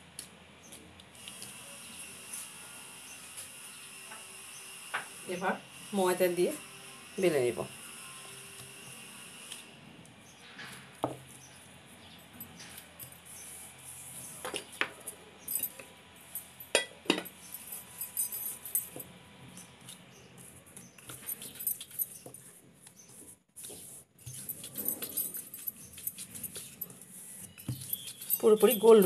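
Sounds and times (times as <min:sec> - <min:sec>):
hands working dough on wood: 0:19.9 - 0:29.0
rolling pin rubbing dough: 0:20.4 - 0:29.0.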